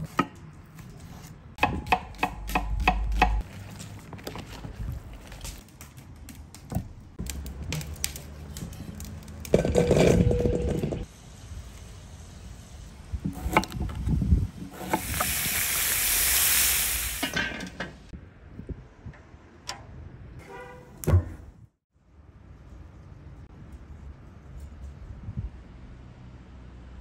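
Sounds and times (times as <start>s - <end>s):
food sizzling in hot fat: 14.6s - 17.4s.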